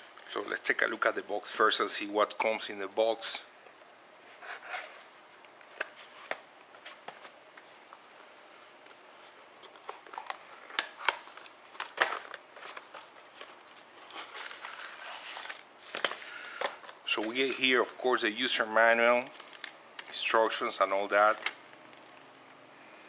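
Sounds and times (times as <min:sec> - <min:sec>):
cardboard packaging handled: 0:08.9 - 0:17.9, 0:19.2 - 0:20.1
paper rustling: 0:08.9 - 0:18.0, 0:19.2 - 0:20.3.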